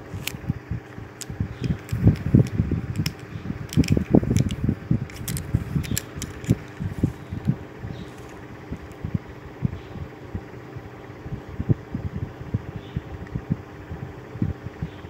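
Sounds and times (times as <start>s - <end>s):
small clicks: 1.2s - 6.8s.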